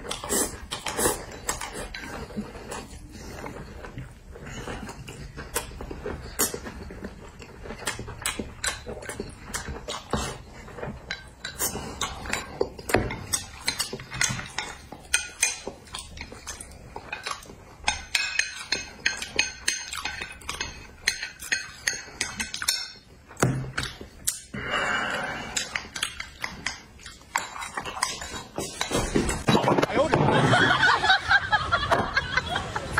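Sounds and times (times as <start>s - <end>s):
utensils clinking on plates: 10.8s - 23.1s.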